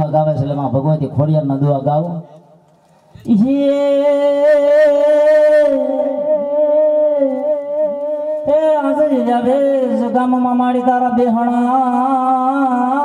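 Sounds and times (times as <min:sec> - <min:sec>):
person singing: 0:03.2 - 0:13.0.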